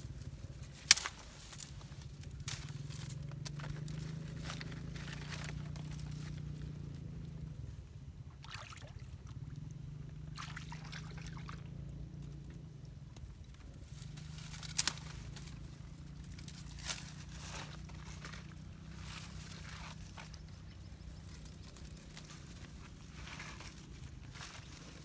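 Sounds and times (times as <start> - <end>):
leaves and branches rustling: 0.0 - 25.0
low steady hum: 0.0 - 25.0
pond water sloshing: 8.2 - 13.0.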